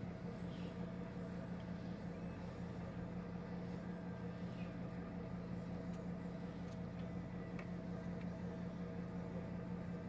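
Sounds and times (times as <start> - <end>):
boat engine humming: 0.0 - 10.0.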